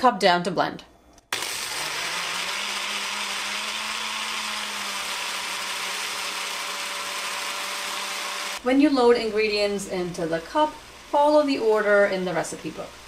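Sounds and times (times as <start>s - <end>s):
blender running: 1.3s - 8.6s.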